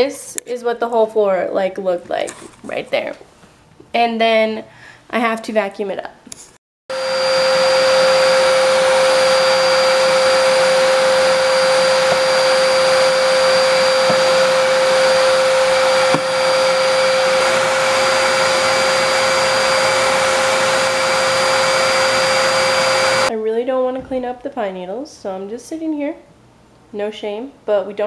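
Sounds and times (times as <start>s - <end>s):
vacuum cleaner running: 6.9s - 23.3s.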